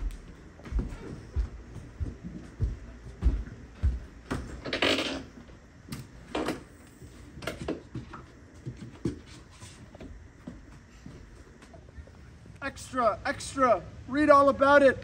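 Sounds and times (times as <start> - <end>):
footsteps: 0.0 - 5.6, 6.9 - 12.2.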